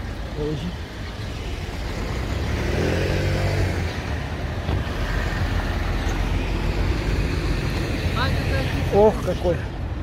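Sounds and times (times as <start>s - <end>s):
road traffic rumble: 0.0s - 10.0s.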